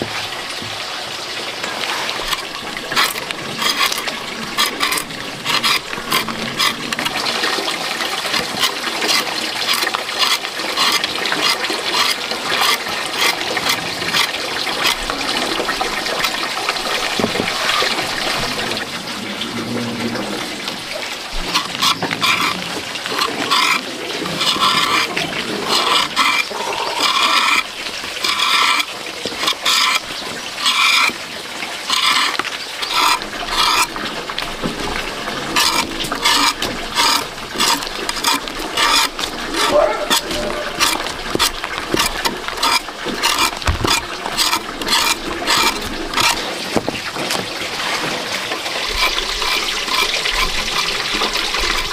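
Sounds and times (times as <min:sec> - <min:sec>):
water splashing and sloshing: 0:00.0 - 0:51.9
small knocks: 0:08.2 - 0:18.4, 0:31.9 - 0:48.2.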